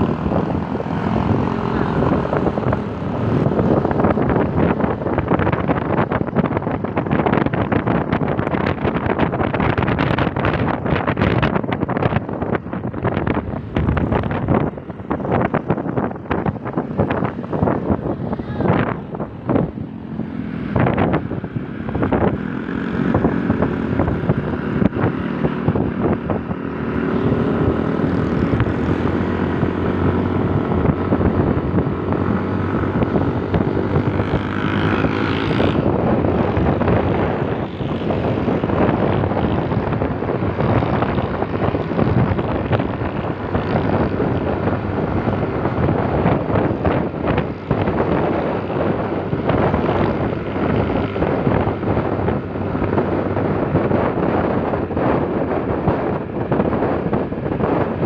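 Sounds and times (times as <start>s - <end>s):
scooter engine drone: 0.0s - 58.0s
wind rushing over microphone: 0.0s - 58.0s.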